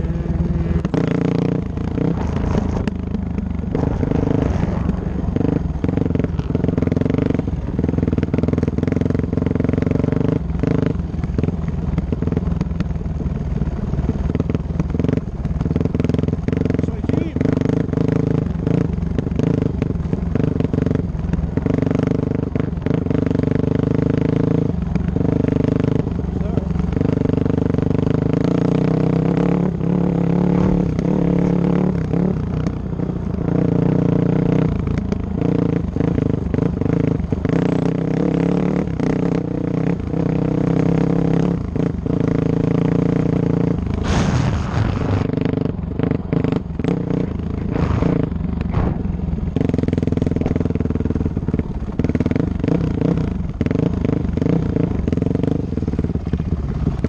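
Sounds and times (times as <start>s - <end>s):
dirt bike engine running: 0.0s - 57.0s
knocks and clatter over rough ground: 0.8s - 57.0s
loud rush of noise: 44.0s - 45.5s.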